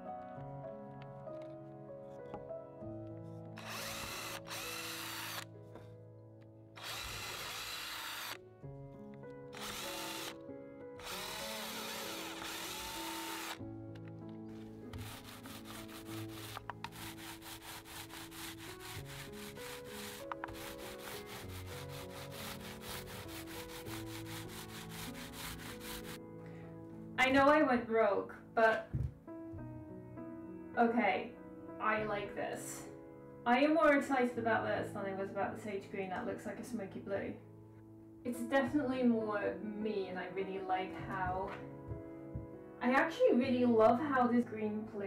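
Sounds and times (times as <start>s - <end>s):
background music: 0.0s - 45.0s
cordless drill boring into wood: 3.6s - 5.5s, 6.8s - 8.4s, 9.5s - 10.4s, 11.0s - 13.6s, 14.9s - 26.2s
paint roller clicking: 3.6s - 5.5s, 6.8s - 8.4s, 9.6s - 10.4s, 11.0s - 26.2s.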